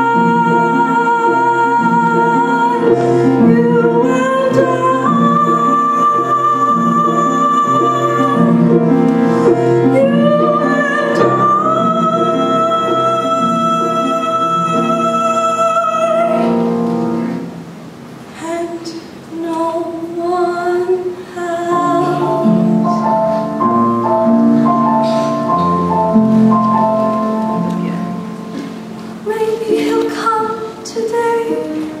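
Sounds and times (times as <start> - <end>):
musical accompaniment: 0.0 - 18.1, 21.4 - 32.0
choir singing: 21.7 - 22.9.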